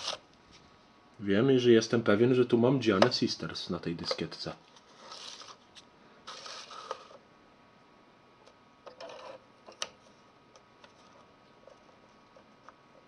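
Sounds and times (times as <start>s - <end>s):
short scrape: 6.3s - 7.2s.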